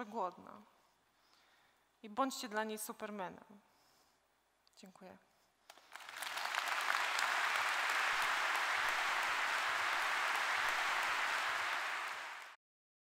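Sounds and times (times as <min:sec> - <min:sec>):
audience applauding: 0:05.7 - 0:12.6.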